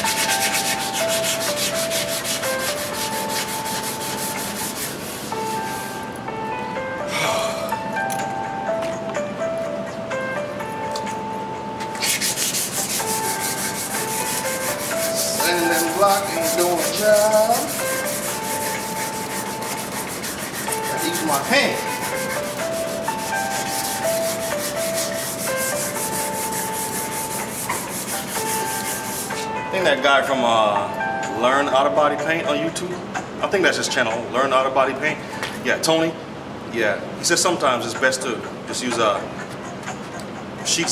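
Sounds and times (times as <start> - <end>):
sandpaper scrubbing metal: 0.0 - 6.0, 11.9 - 29.5
tune playing: 0.0 - 33.1.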